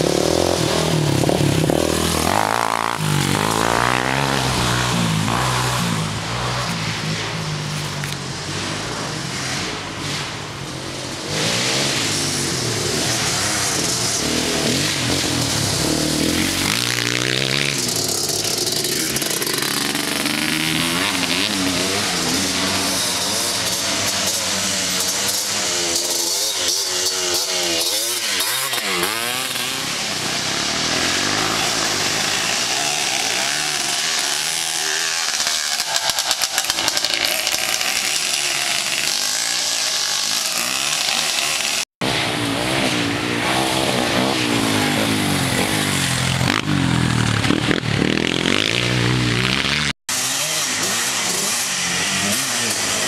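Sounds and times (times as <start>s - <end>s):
quad engines revving: 0.0s - 53.0s.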